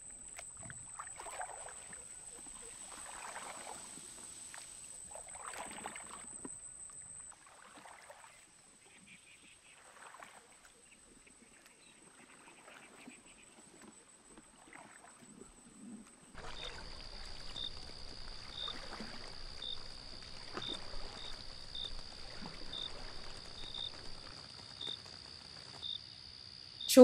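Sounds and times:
soft splashes: 0.0 - 26.0
water hiss: 0.9 - 5.9
insects trilling: 16.4 - 27.0.

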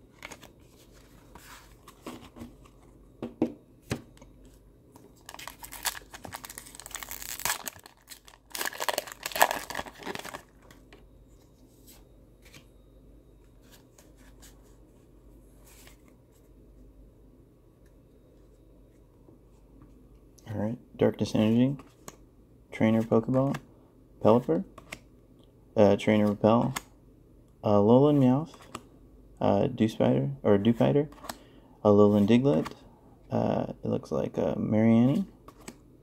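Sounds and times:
foil wrapper tearing and crinkling: 5.2 - 10.5.

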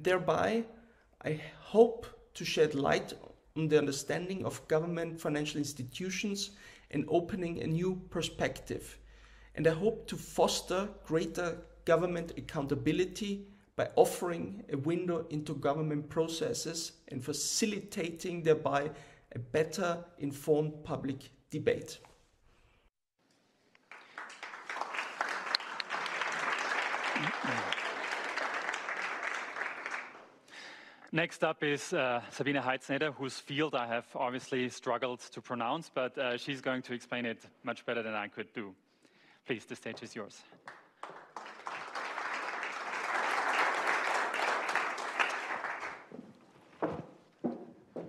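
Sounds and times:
audience applauding: 23.8 - 30.4, 40.6 - 46.1.

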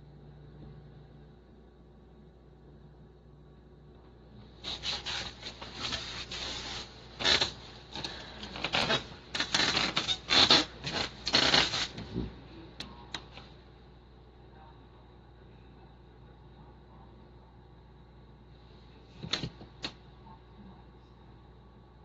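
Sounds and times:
bedding rustling and scraping: 4.6 - 12.4.

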